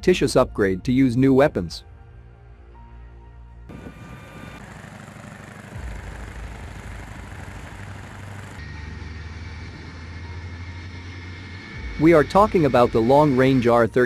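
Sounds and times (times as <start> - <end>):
engine and machinery rumble: 2.8 - 14.0
jet engines droning: 3.7 - 14.0.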